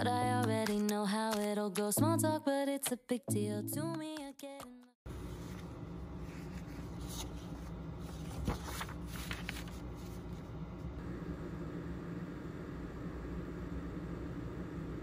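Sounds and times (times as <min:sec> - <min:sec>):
low room hum: 0:05.1 - 0:15.0.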